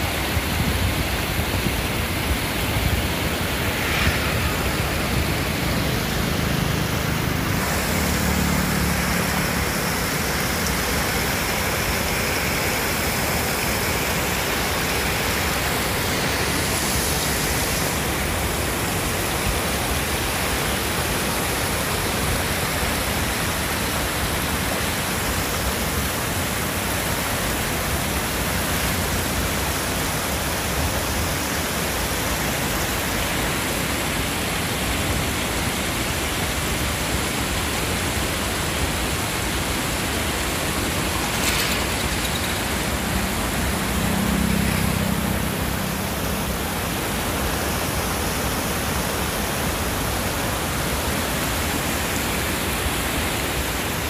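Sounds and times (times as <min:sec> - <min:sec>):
water pouring over a weir: 0:40.8 - 0:44.6.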